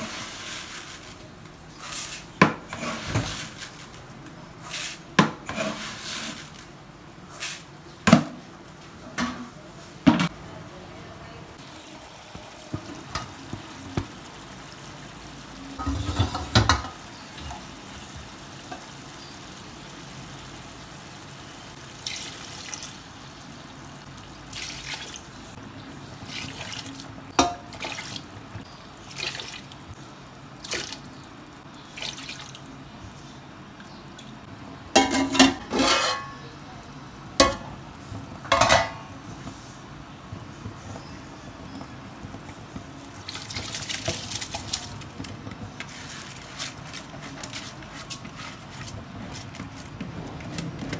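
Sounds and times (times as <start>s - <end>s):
faint hiss from pot: 0.0s - 7.9s
water pouring into a metal pot: 22.0s - 23.0s.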